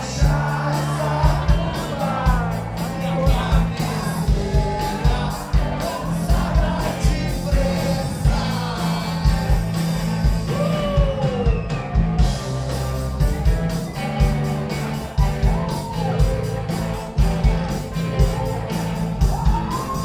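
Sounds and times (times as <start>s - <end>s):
person singing: 0.0s - 11.5s
bass guitar: 0.0s - 20.0s
distorted electric guitars: 0.0s - 20.0s
steady drum beat: 0.0s - 20.0s.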